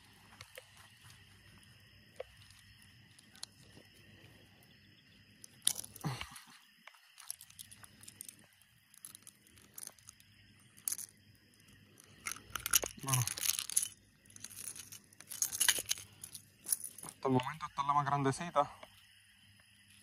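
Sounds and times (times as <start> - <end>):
clicks and rustles of fishing gear: 5.6 - 10.2, 12.0 - 17.2.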